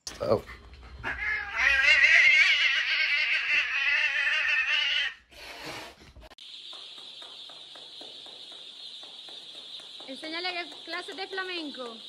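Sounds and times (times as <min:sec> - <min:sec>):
cat yowling: 0:01.0 - 0:05.2
chicks cheeping: 0:06.4 - 0:12.0.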